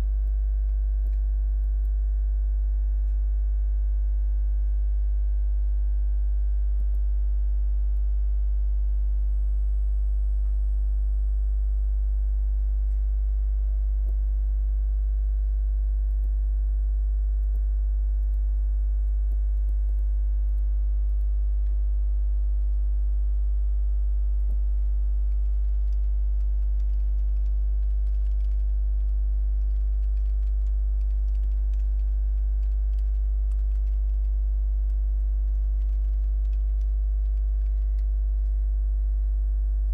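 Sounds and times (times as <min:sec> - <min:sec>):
electrical mains hum: 0:00.0 - 0:39.9
faint ticks: 0:00.1 - 0:02.0.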